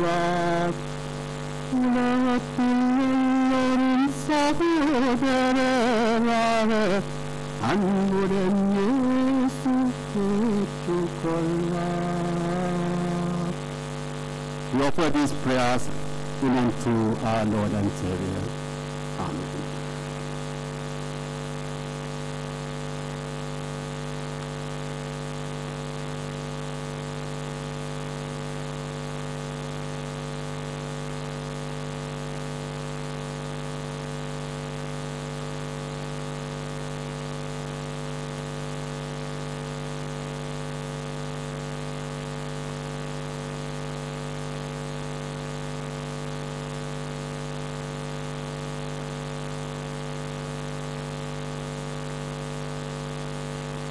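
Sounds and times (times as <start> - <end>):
steady low hum: 0.0 - 21.4.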